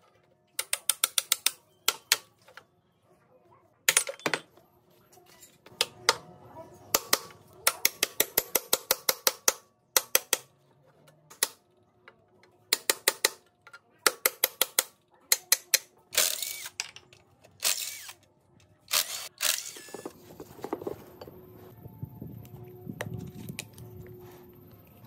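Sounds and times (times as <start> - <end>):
metallic rasps: 17.6 - 18.2.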